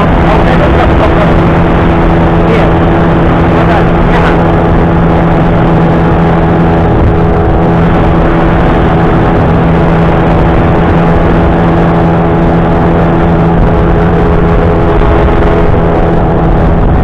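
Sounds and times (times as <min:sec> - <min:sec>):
outboard motor running: 0:00.0 - 0:17.0
water rushing along hull: 0:00.0 - 0:17.0.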